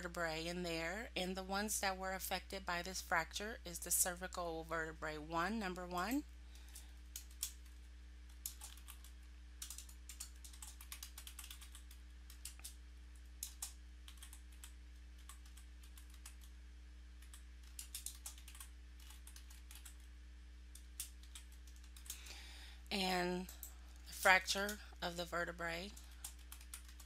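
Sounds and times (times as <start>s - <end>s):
low electrical hum: 0.0s - 27.0s
computer keyboard typing: 7.1s - 12.8s, 13.4s - 16.5s, 17.2s - 20.1s, 20.7s - 22.2s, 25.8s - 27.0s.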